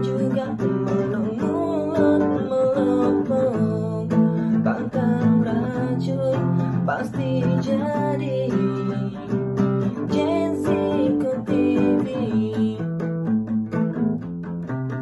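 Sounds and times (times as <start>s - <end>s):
acoustic guitar strumming: 0.0s - 15.0s.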